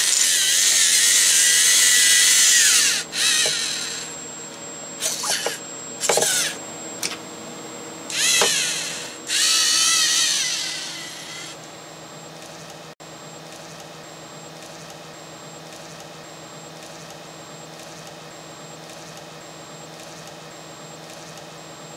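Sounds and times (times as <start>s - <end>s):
small electric motors whirring: 0.0s - 4.3s, 5.0s - 7.2s, 8.1s - 11.6s
steady low hum: 0.0s - 21.9s.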